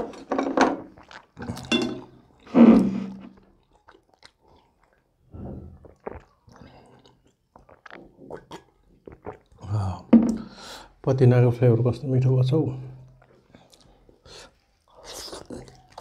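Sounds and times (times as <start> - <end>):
person chewing and biting food: 0.9 - 2.5, 3.2 - 9.6.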